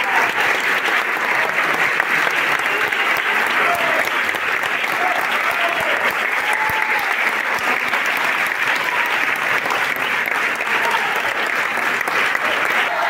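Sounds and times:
large audience clapping: 0:00.0 - 0:13.0.

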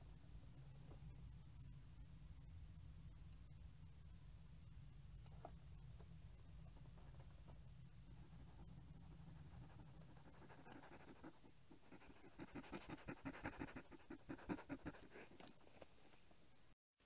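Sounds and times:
porcupine sniffing puffs: 0:10.8 - 0:15.8.

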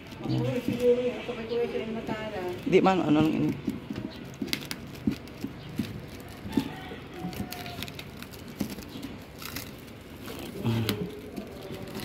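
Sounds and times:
plastic crinkling: 0:00.0 - 0:12.0
scissors snipping plastic: 0:03.1 - 0:12.0.

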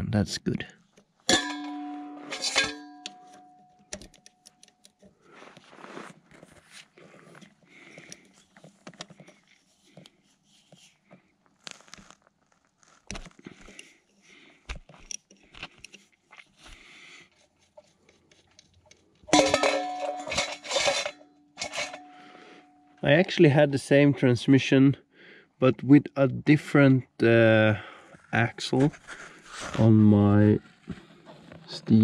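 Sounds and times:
metal bowl clanging on gravel: 0:01.3 - 0:03.7, 0:19.3 - 0:23.0
wrench clicking and scraping metal: 0:14.9 - 0:16.1, 0:17.8 - 0:22.6.

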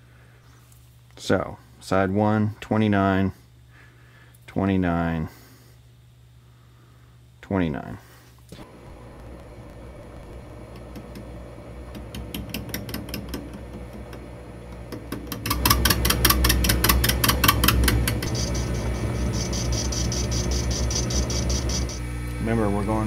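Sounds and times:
high whine: 0:08.5 - 0:23.0
metal lathe humming: 0:08.6 - 0:23.0
cutting tool ticking on metal: 0:14.9 - 0:18.3.

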